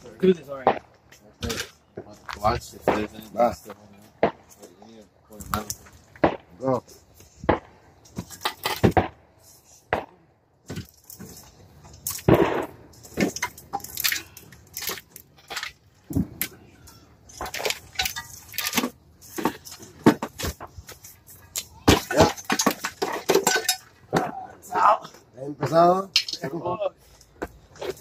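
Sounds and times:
hand tools clanking on metal: 12.9 - 16.0, 16.6 - 24.4, 25.6 - 26.8.

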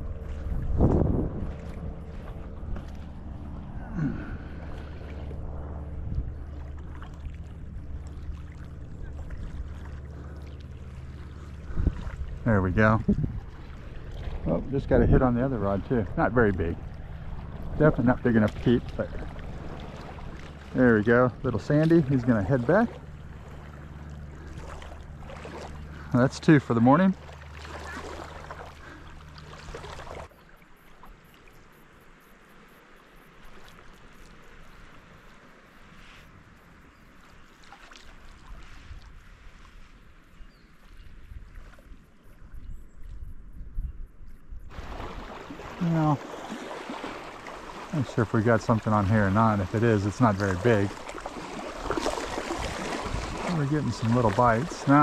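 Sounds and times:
engine drone: 0.0 - 30.3, 44.7 - 55.0
water lapping at a bank: 0.0 - 55.0.

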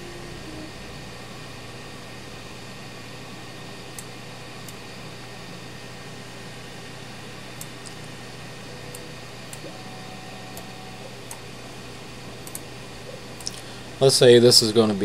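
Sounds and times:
low room hum: 0.0 - 15.0
computer mouse clicks: 12.4 - 12.7.

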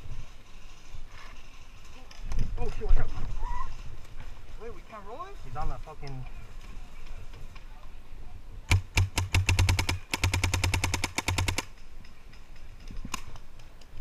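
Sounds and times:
paintball marker firing: 8.7 - 11.8.

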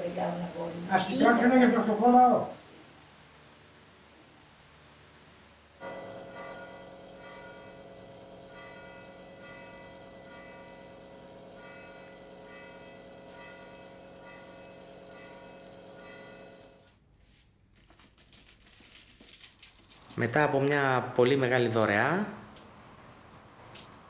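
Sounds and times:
bells chiming: 5.8 - 16.8
steady sustained tone: 5.8 - 16.9.

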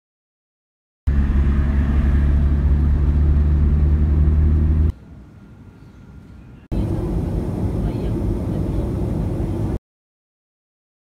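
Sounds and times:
vehicle engine rumbling: 1.1 - 9.8.

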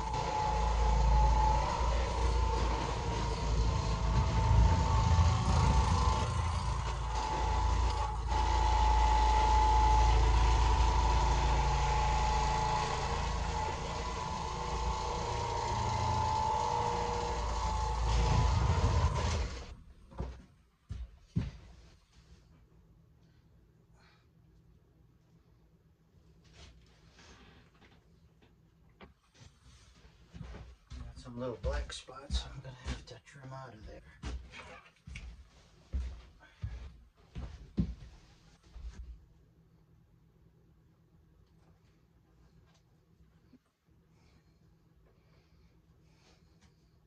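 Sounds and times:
floor machine motor humming: 0.0 - 20.3.

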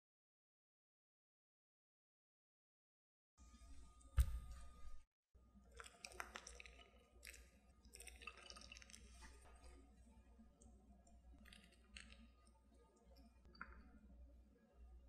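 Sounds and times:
baking dish thump on table: 4.2 - 4.6
cheese sprinkling crackle: 5.7 - 9.8.

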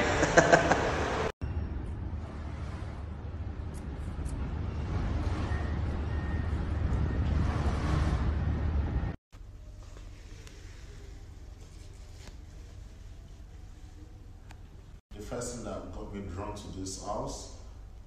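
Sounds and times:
vehicle road and wind noise: 0.0 - 9.2.

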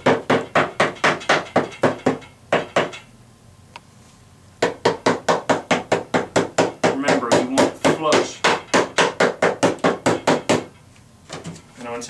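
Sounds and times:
hammer tapping wood: 0.0 - 3.1, 4.6 - 10.7.

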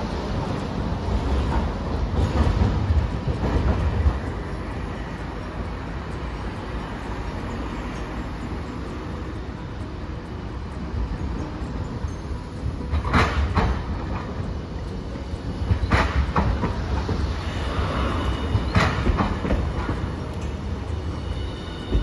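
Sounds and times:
tram wheels rumbling on rails: 0.0 - 22.0.

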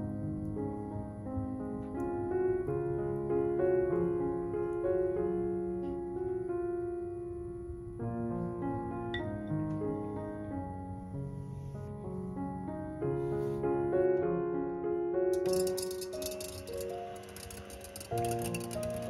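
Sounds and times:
gentle piano music: 0.0 - 19.0.

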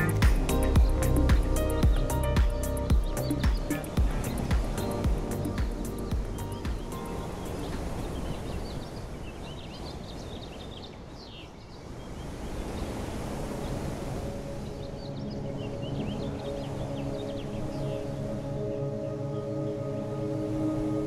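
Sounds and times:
soft music tones: 0.0 - 8.6, 13.7 - 21.0
noisy outdoor wash: 0.0 - 21.0.

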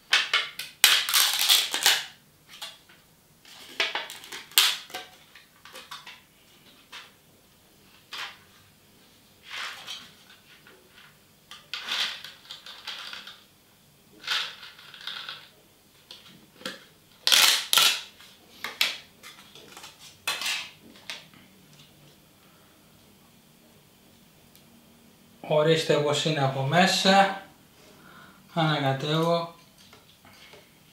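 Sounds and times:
plastic cup crinkling: 0.2 - 2.8, 3.5 - 6.2, 16.1 - 21.2.

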